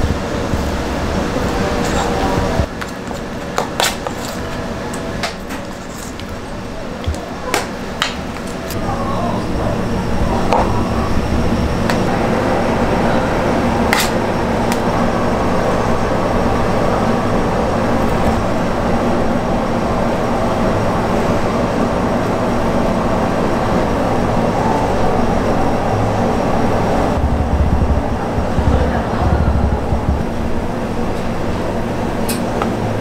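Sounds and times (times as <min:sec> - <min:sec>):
kitchen machinery humming: 0:00.0 - 0:33.0
soft low thumps: 0:27.2 - 0:30.8.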